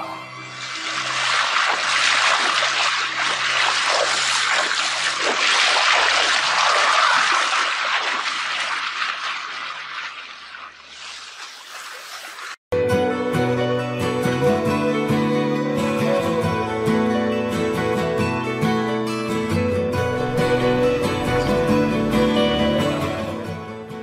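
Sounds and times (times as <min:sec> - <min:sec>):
elephant splashing through water: 0:00.5 - 0:12.6.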